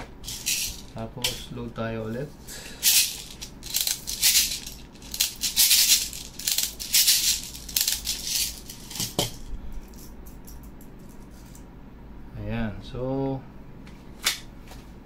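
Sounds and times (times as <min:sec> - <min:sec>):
plastic pellets rattling in container: 0:00.2 - 0:01.0, 0:02.8 - 0:09.2.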